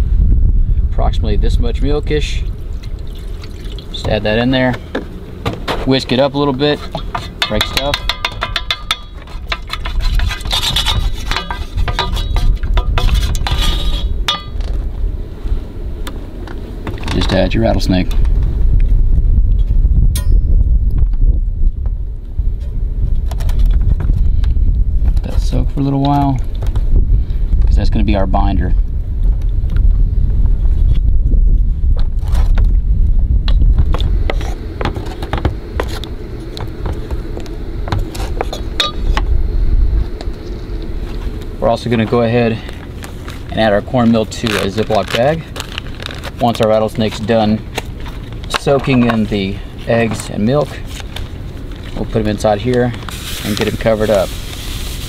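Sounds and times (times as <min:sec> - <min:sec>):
wind rumble on microphone: 0:00.0 - 0:55.0
wooden spoon knocking metal pan: 0:07.0 - 0:09.7.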